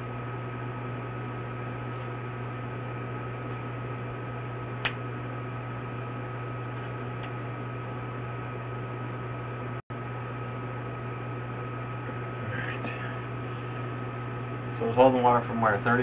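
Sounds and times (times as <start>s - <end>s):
electrical hum and hiss: 0.0s - 16.0s
sharp click: 4.8s - 5.0s.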